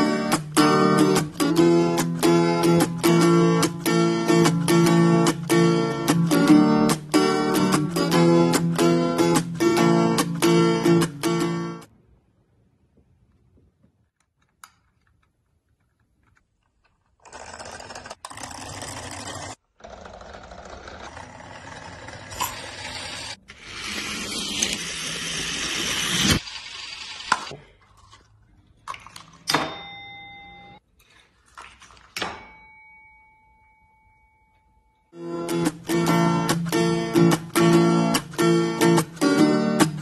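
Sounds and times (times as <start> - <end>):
bell-like chime ringing: 29.6 - 30.8, 32.4 - 35.2.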